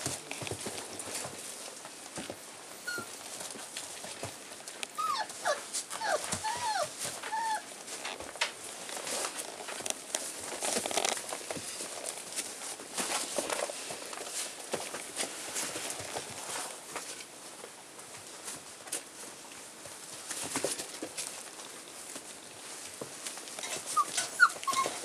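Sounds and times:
puppies scuffling: 0.0 - 25.0
puppies whimpering: 2.8 - 3.2, 4.9 - 7.7, 23.6 - 25.0.

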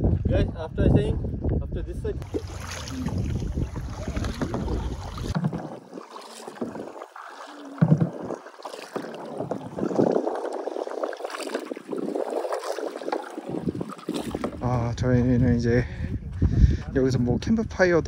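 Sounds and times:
wind buffeting microphone: 0.0 - 18.0
kayak paddles splashing in water: 2.2 - 14.7.

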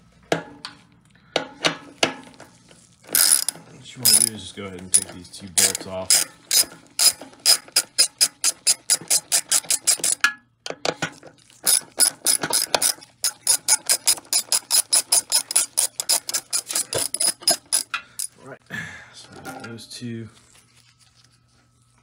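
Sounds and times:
ratchet wrench clicking: 3.2 - 10.2, 11.7 - 18.4.

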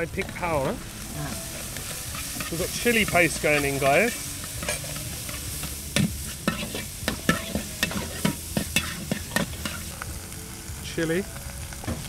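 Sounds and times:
meat sizzling in a wok: 0.0 - 12.0
metal spatula scraping a wok: 1.1 - 9.9.

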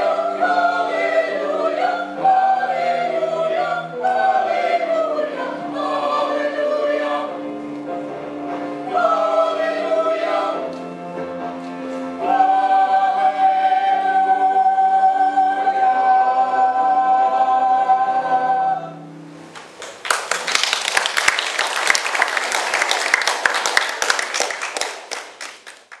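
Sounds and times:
choir singing a hymn: 0.0 - 19.4
congregation applauding: 19.6 - 26.0.

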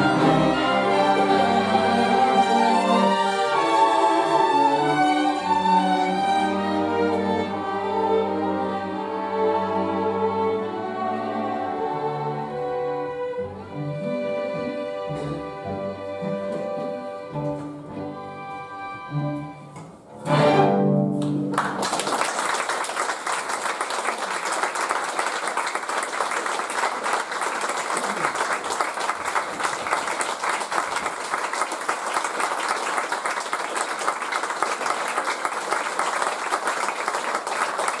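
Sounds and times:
string orchestra playing tango: 0.0 - 21.6
audience applause: 21.2 - 38.0.

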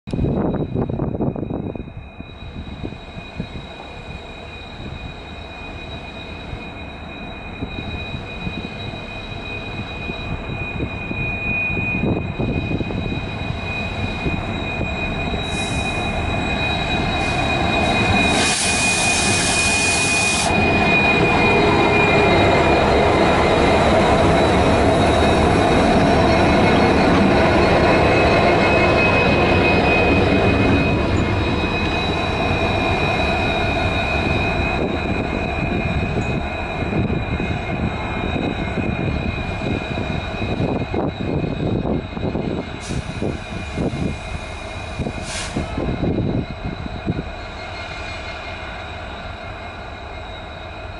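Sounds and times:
diesel locomotives running: 0.1 - 50.9
high whine: 0.1 - 50.9
burst of hiss: 18.3 - 20.5, 45.2 - 45.7.

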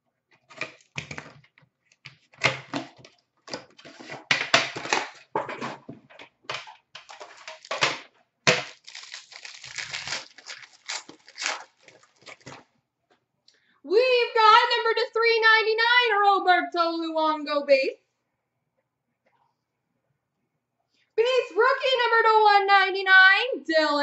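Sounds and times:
plastic wrap and cardboard tearing: 6.6 - 12.7.

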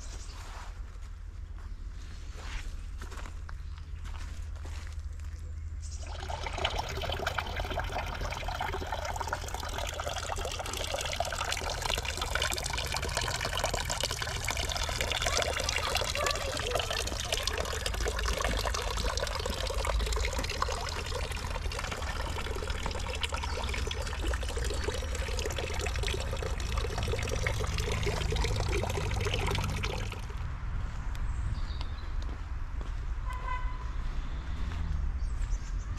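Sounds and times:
water running and trickling: 5.9 - 30.4.

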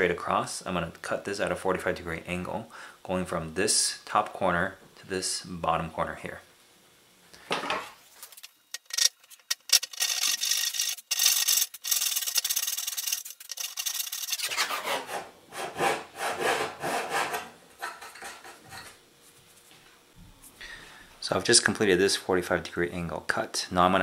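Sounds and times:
hand saw cutting: 9.8 - 18.6.

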